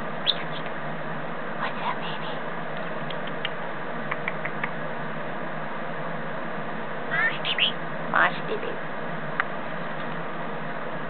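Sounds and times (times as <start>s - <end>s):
parrot chirping and squeaking: 7.1s - 7.8s.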